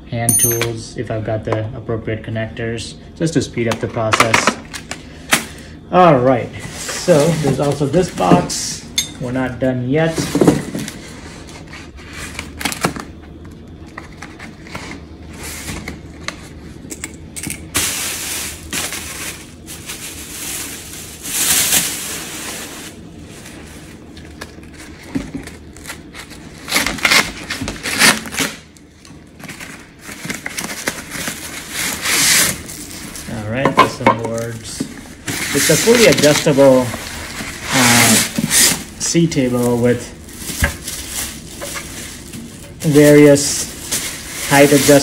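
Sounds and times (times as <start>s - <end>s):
cardboard scraping and crackling: 35.2s - 45.0s.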